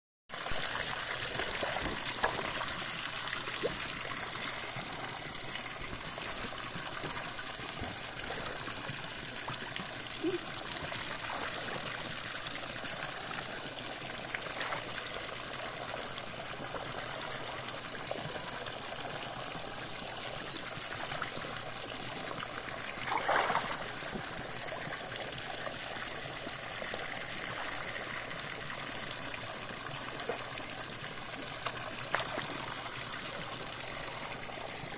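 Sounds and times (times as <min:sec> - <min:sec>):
water jet splashing into pool: 0:00.3 - 0:20.2, 0:22.0 - 0:28.4
water swash: 0:22.7 - 0:24.6.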